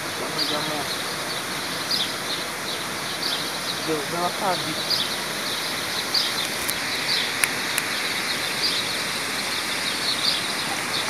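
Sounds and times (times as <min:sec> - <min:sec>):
steady hiss: 0:00.0 - 0:11.0
sharp clicks: 0:06.4 - 0:08.0.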